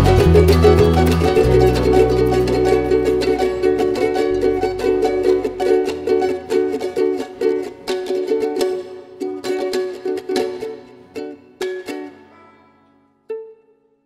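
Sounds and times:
bass line: 0.0 - 7.1
plucked string music: 0.0 - 14.0.

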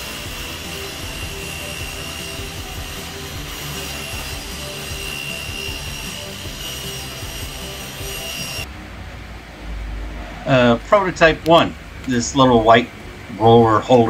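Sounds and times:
table saw whining: 0.0 - 8.7.

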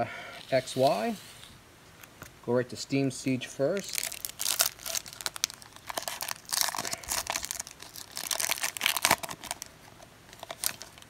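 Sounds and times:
foil wrapper crinkling and tearing: 3.7 - 11.0.

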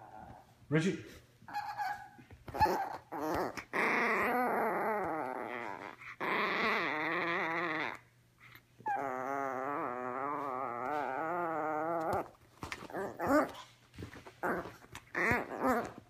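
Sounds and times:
puppy whine-growling: 0.0 - 0.6, 1.5 - 16.0.

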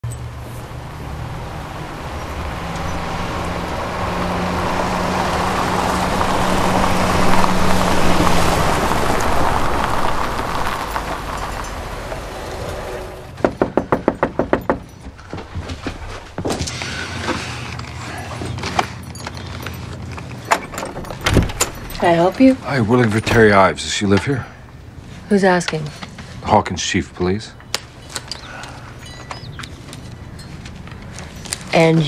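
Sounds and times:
car engine hum: 0.0 - 26.2
tyres crunching on gravel: 2.0 - 13.2
sharp knocks on a door: 13.4 - 15.2.

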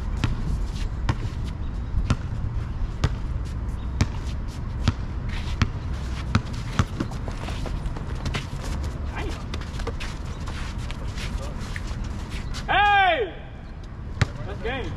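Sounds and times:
basketball bouncing on asphalt: 2.0 - 2.4, 3.0 - 3.4, 4.0 - 10.6.

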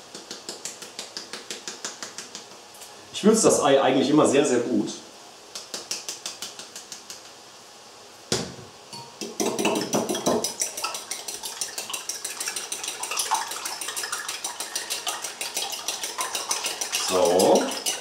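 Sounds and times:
spoon beating eggs in bowl: 9.2 - 18.0.

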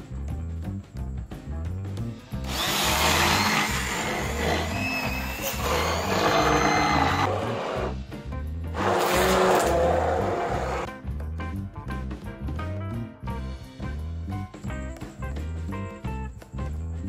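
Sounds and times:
background music with steady beat: 0.0 - 4.1, 7.2 - 8.8, 10.8 - 17.0
immersion blender motor running: 2.5 - 7.9, 8.8 - 10.9.

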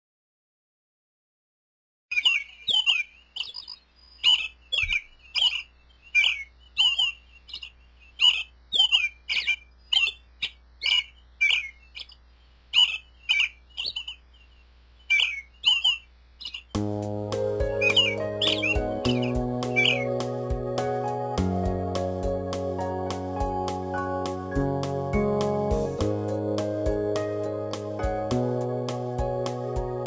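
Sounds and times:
robin sharp calls: 2.1 - 16.8, 17.7 - 20.2
music: 16.8 - 30.0.

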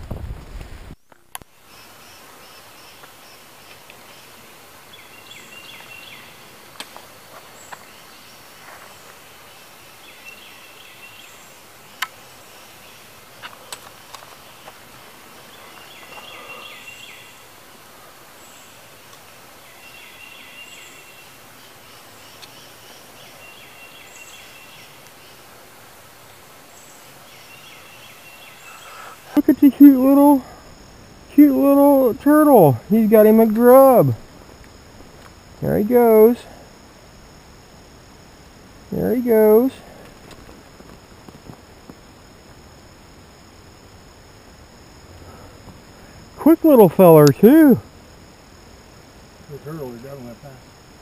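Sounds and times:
steady background hiss: 0.0 - 51.0
songbird repeating phrase: 27.6 - 30.6, 31.3 - 34.2, 35.6 - 36.4, 38.9 - 39.8, 46.4 - 47.8
sharp clicks: 47.2 - 47.5.

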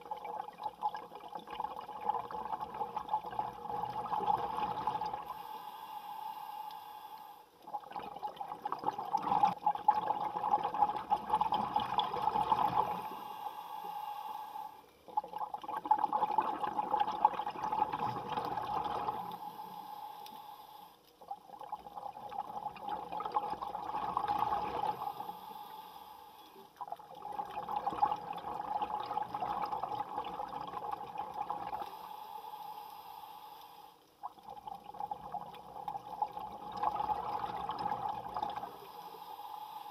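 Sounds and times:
exhaled bubbles underwater: 0.0 - 5.4, 7.6 - 13.2, 15.1 - 19.4, 21.2 - 25.4, 26.8 - 32.0, 34.2 - 39.0.

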